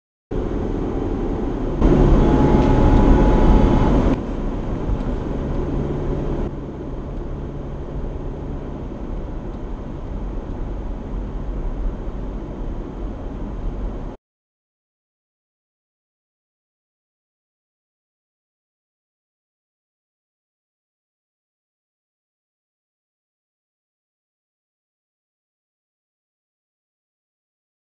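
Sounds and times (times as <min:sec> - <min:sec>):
loud steady-pitched tone: 0:00.3 - 0:11.6
car road and engine noise: 0:00.3 - 0:14.2.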